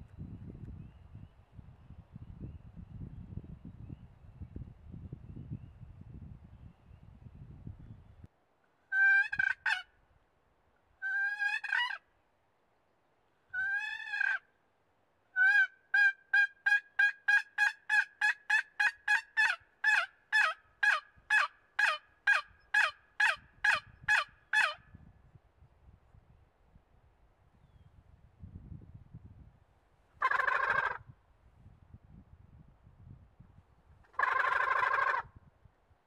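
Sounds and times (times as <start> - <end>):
turkey yelping: 8.9 - 9.8, 11.0 - 12.0, 13.6 - 14.4, 15.4 - 24.8, 30.2 - 31.0, 34.1 - 35.3.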